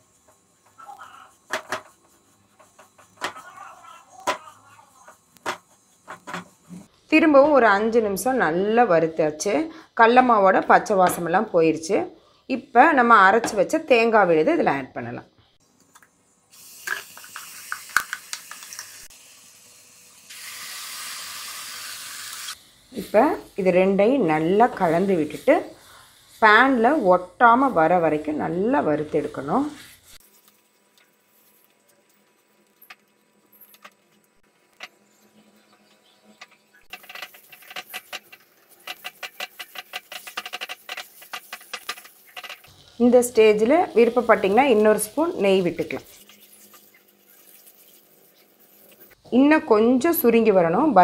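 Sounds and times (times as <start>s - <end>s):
paste sizzling in hot pan: 0.0s - 3.2s, 16.5s - 32.7s, 36.8s - 49.2s
spatula scraping a frying pan: 0.0s - 3.6s, 36.9s - 42.9s.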